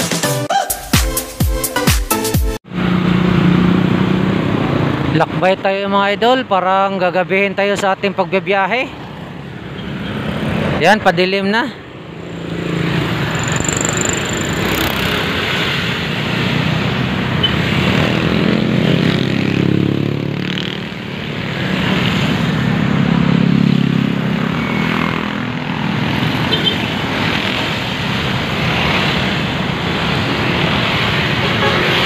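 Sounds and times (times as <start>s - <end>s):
road and wind noise: 2.6s - 32.0s
vehicle engine accelerating: 2.7s - 5.4s, 12.1s - 32.0s.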